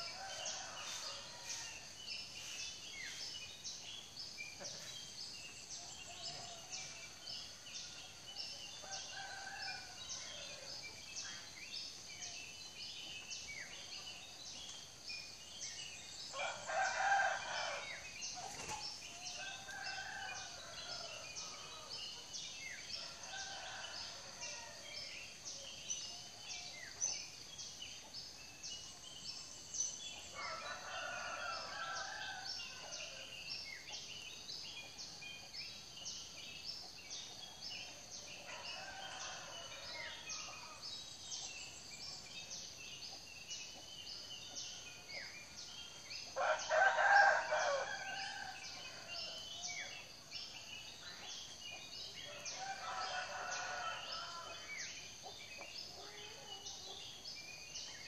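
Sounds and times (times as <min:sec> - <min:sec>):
roosters crowing: 0:16.3 - 0:18.0, 0:19.3 - 0:22.0, 0:30.4 - 0:33.2, 0:46.4 - 0:49.3, 0:52.3 - 0:54.7.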